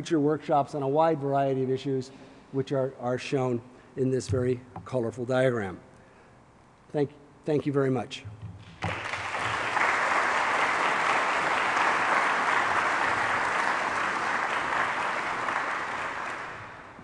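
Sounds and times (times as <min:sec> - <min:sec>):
crowd clapping: 0:08.6 - 0:17.0.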